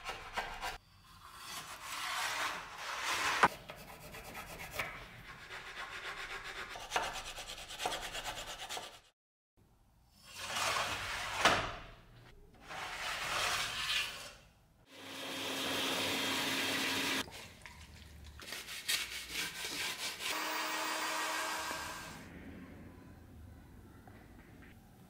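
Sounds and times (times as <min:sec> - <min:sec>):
shop vacuum running: 0:14.9 - 0:17.2, 0:20.3 - 0:22.3.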